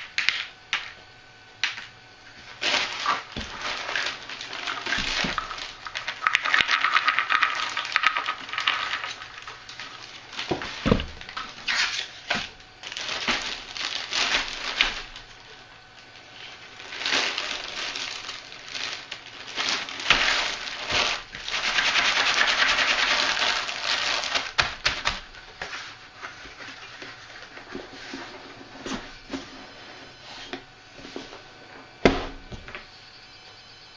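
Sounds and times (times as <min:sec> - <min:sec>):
plastic bag crinkling: 0:02.4 - 0:28.2.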